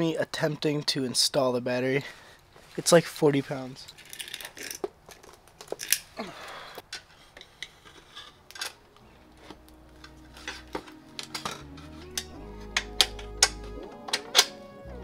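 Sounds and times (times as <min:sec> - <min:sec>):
low background music: 0:08.7 - 0:15.0.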